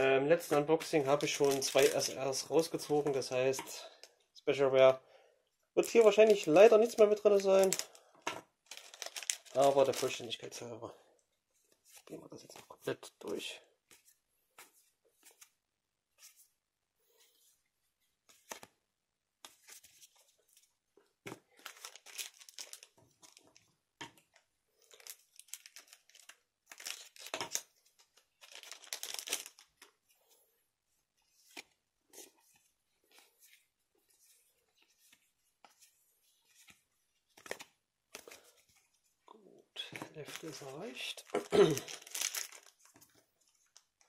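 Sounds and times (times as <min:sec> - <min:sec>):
wrapper tearing and crinkling: 0:01.1 - 0:02.2, 0:08.6 - 0:10.2, 0:21.6 - 0:23.5, 0:24.9 - 0:27.7, 0:28.4 - 0:29.8, 0:40.3 - 0:42.8
cards being flipped: 0:18.3 - 0:18.7, 0:34.8 - 0:38.4.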